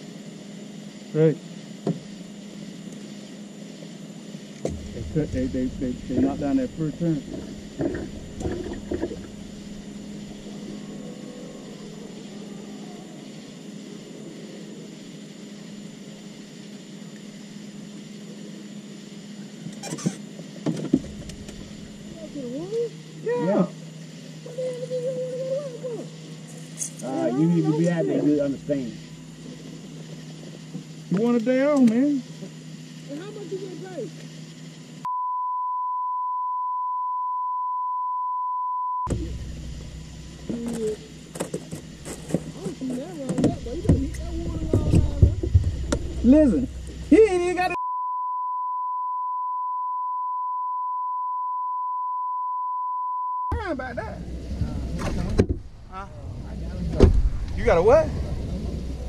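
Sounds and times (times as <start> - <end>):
steady low hum: 0.0 - 35.8, 39.0 - 52.2, 53.5 - 59.0
faint high whine: 0.0 - 59.0
short squeaks: 19.7 - 20.3
censor bleep: 35.0 - 39.3, 47.7 - 53.6.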